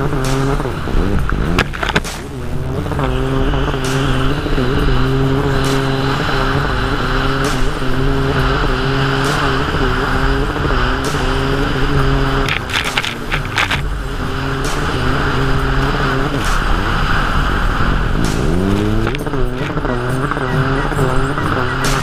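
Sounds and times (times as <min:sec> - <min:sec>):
jet ski engine at high revs: 0:00.0 - 0:22.0
spray and rushing air: 0:00.2 - 0:22.0.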